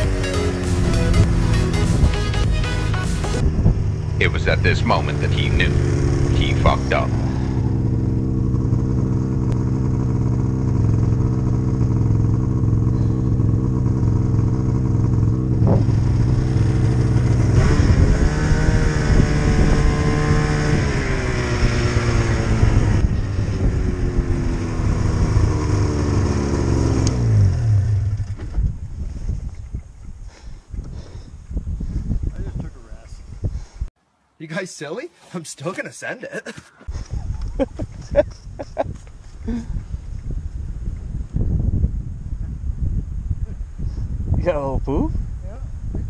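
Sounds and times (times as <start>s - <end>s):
snowmobile engine running: 0.0s - 27.5s, 35.2s - 38.8s.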